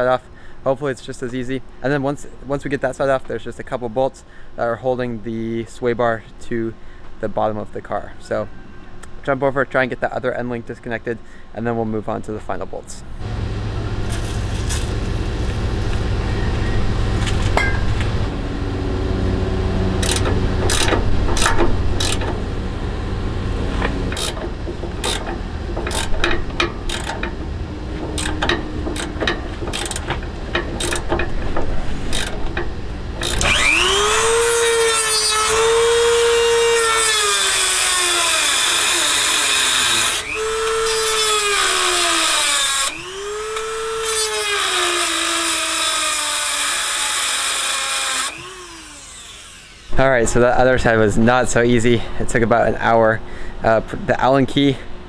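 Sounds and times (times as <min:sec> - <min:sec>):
rotary tool cutting metal: 0:20.0 - 0:22.3, 0:23.8 - 0:24.4, 0:25.0 - 0:27.4, 0:28.1 - 0:31.3, 0:32.0 - 0:50.0
wrench clinking on metal: 0:20.0 - 0:22.3, 0:24.1 - 0:27.4, 0:28.1 - 0:31.4, 0:32.1 - 0:33.4.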